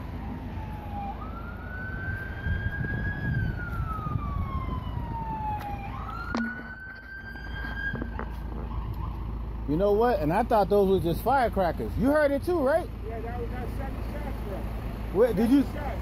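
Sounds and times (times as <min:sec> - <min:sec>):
ambulance siren wailing: 0:00.0 - 0:10.3
street traffic rumble: 0:00.0 - 0:16.0.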